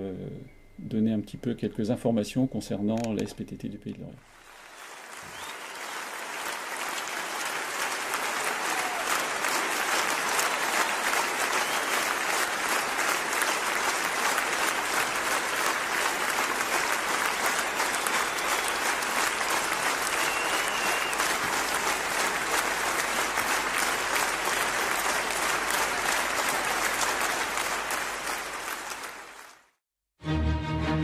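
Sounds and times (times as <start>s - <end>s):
group applauding: 4.3s - 29.8s.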